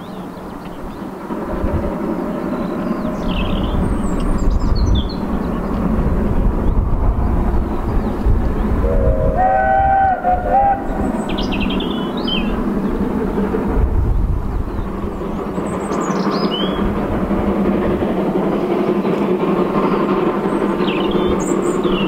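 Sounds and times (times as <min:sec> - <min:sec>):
small birds chirping: 0:00.0 - 0:01.2, 0:02.2 - 0:09.1, 0:10.8 - 0:13.1, 0:14.5 - 0:17.0, 0:17.7 - 0:22.0
steady low rumble: 0:00.0 - 0:22.0
distant steam locomotive whistle: 0:08.8 - 0:12.6.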